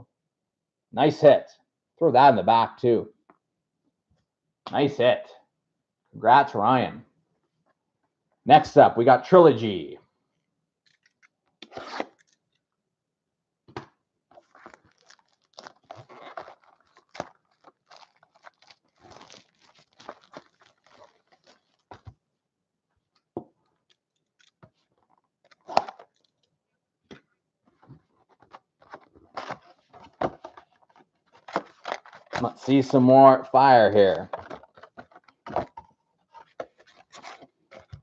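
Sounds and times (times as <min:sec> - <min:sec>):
plastic wrap crinkling and tearing: 0:14.3 - 0:22.1, 0:28.4 - 0:32.5, 0:36.3 - 0:38.0.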